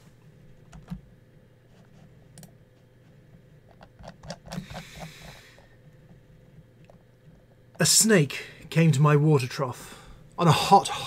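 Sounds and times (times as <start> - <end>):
faint steady hum: 0.0 - 11.0
small clicks and knocks: 3.6 - 7.8.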